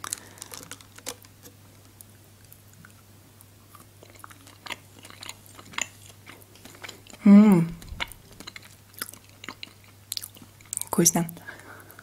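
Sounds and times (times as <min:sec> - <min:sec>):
faint low hum: 0:00.0 - 0:12.0
chewing mouth sounds: 0:02.7 - 0:10.9.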